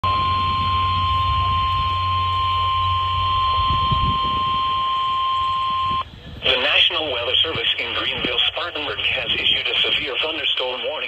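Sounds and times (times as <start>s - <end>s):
high steady alert beep: 0.0s - 6.0s
low hum: 0.0s - 10.9s.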